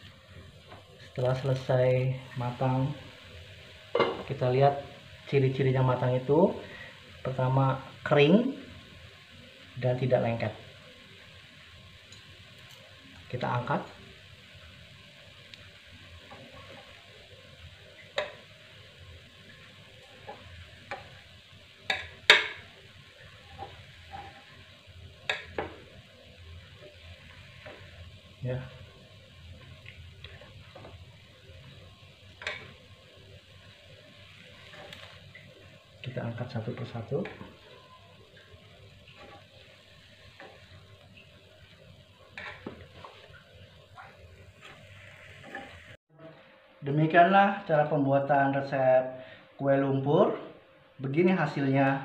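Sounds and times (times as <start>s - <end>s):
faint sizzle: 0.0s - 52.0s.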